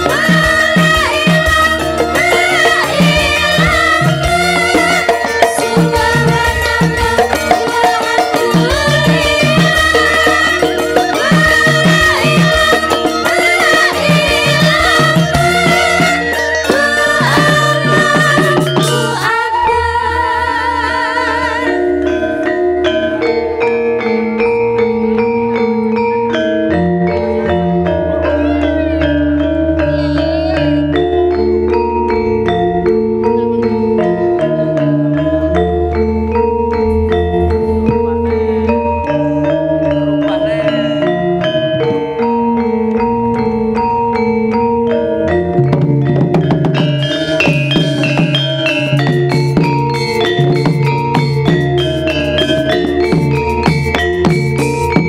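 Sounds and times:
woman singing with vibrato: 0:00.0 - 0:23.6, 0:27.8 - 0:31.3
metallophones ringing: 0:00.0 - 0:55.0.

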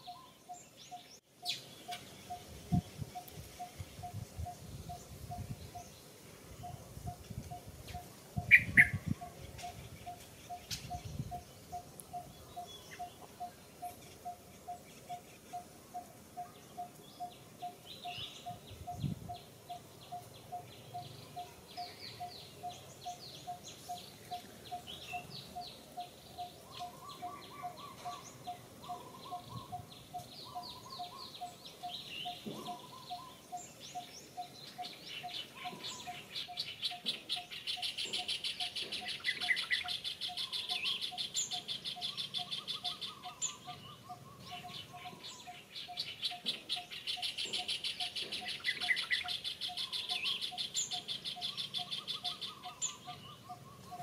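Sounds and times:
bird chirps and whistles: 0:08.5 - 0:09.0.

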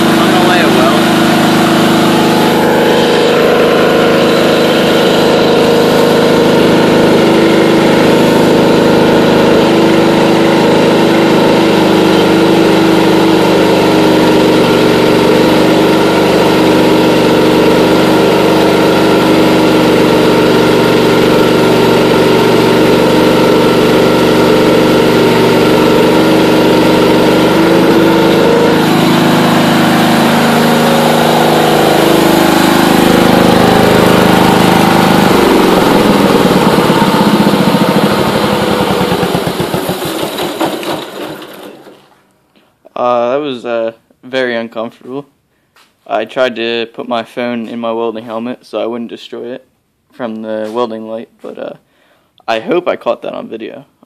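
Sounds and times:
garden tractor engine running: 0:00.0 - 0:42.3.

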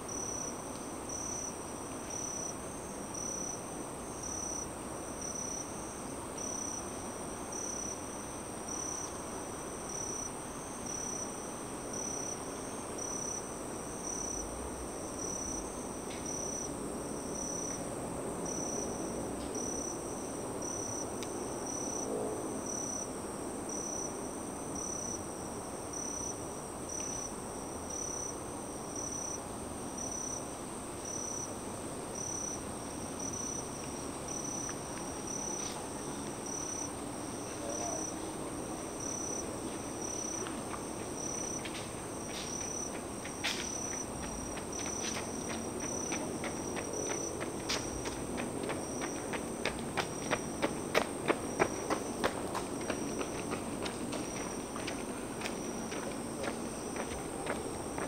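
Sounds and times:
insects trilling and chirping: 0:00.0 - 0:17.8, 0:18.4 - 0:58.0
highway traffic noise: 0:34.0 - 0:58.0.

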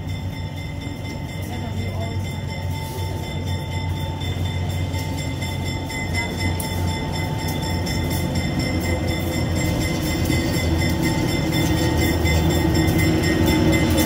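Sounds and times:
diesel locomotive engine humming: 0:00.0 - 0:14.0.

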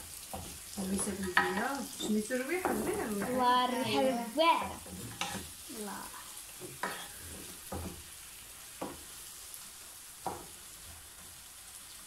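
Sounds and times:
chicken sizzling in a pan: 0:00.0 - 0:12.0
wooden spatula knocking on pan: 0:00.2 - 0:03.5, 0:06.6 - 0:08.1, 0:08.8 - 0:09.1, 0:10.2 - 0:10.6.

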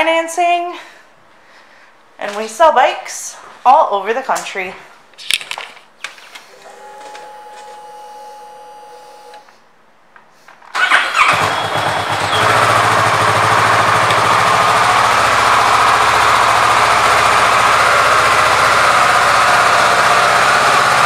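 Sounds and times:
motorcycle engine starting and idling: 0:10.7 - 0:21.0.

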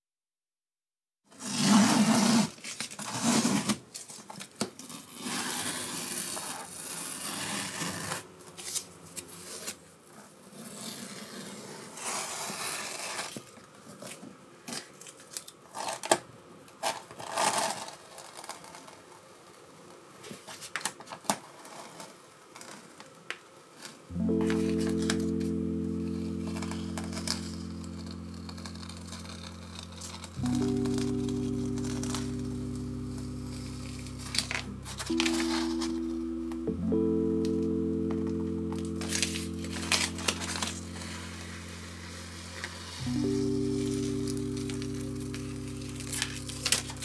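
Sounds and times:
steady low hum: 0:24.1 - 0:47.0.

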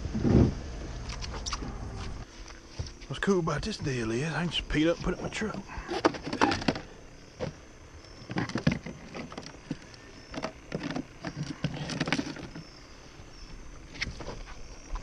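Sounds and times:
plastic parts knocking and clattering: 0:05.9 - 0:07.6, 0:08.2 - 0:12.6.

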